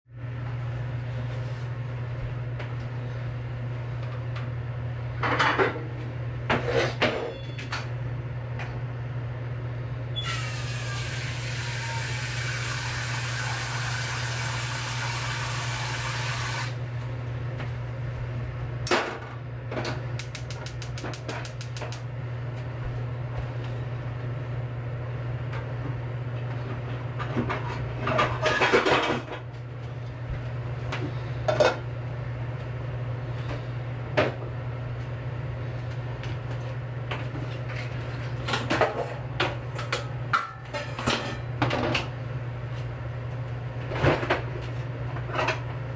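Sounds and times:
steady low hum: 0:16.8 - 0:45.9
gas burner igniter clicking: 0:20.2 - 0:22.1.

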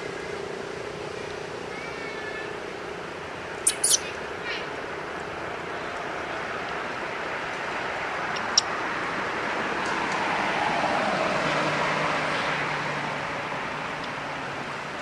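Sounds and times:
sharp click: 0:03.7 - 0:04.0.

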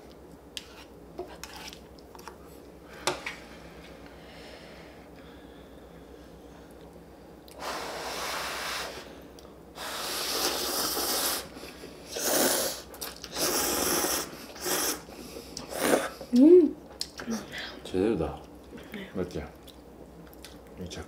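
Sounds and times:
people slurping noodles: 0:09.8 - 0:11.5, 0:12.1 - 0:16.2.

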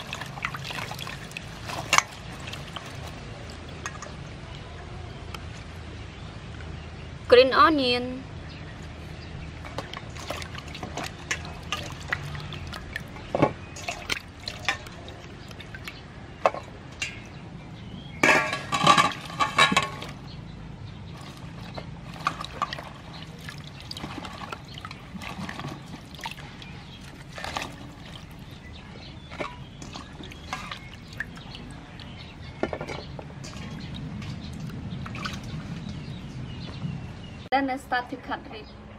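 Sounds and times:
hands splashing water in bowl: 0:00.0 - 0:04.1, 0:09.6 - 0:17.4, 0:21.1 - 0:36.2
water drips: 0:00.0 - 0:04.7, 0:08.8 - 0:37.1.

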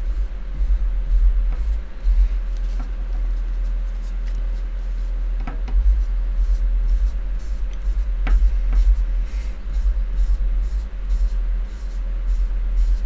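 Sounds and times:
steady deep rumble: 0:00.0 - 0:13.0
tissue rubbing on chip: 0:01.1 - 0:05.2.

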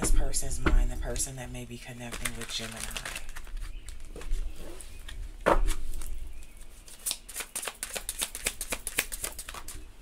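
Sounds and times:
cards shuffled by hand: 0:02.0 - 0:04.4, 0:06.9 - 0:09.9.

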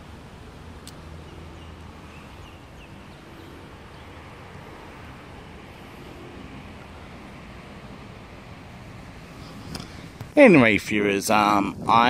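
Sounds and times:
wind buffeting microphone: 0:06.5 - 0:12.0.

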